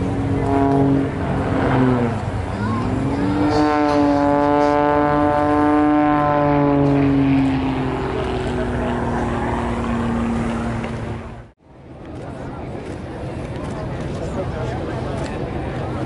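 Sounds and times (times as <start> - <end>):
propeller plane engine droning: 0.0 - 16.0.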